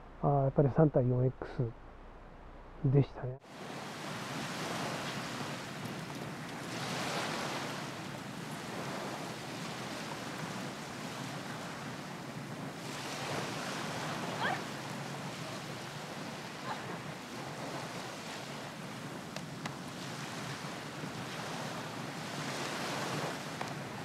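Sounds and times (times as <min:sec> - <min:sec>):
wind: 0:00.0 - 0:24.0
waves washing on beach: 0:03.4 - 0:24.0.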